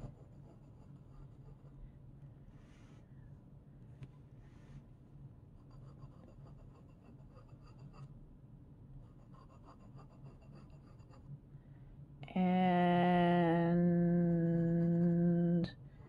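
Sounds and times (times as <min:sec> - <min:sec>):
pen nib scratching paper: 0:00.0 - 0:01.8, 0:05.6 - 0:08.1, 0:09.0 - 0:11.3, 0:14.5 - 0:15.2.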